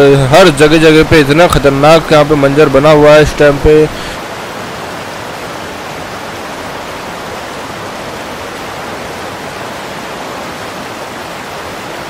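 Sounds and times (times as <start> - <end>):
rushing water: 0.0 - 12.0.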